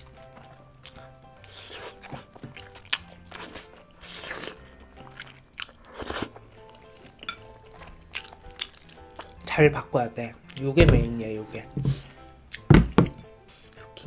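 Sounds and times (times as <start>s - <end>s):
chewing and crunchy bites: 0.0s - 9.4s
soft background music: 0.0s - 14.0s
slurping noodles: 3.4s - 4.6s, 5.7s - 6.4s.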